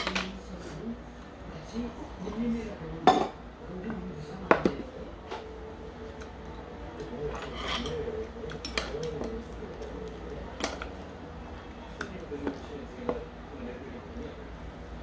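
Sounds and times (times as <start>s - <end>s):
faint steady hum: 0.0s - 15.0s
metal chopsticks and bowl clinking: 7.2s - 9.3s.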